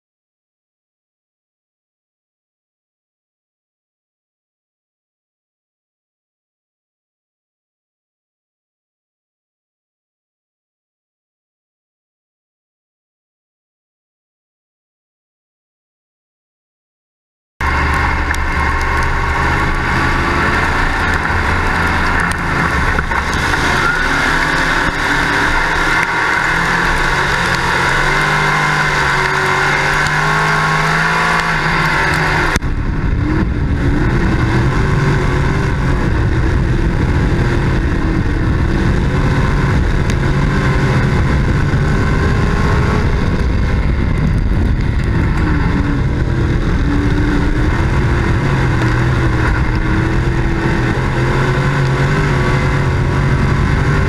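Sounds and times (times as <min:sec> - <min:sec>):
race car engine racing: 0:17.6 - 0:54.0.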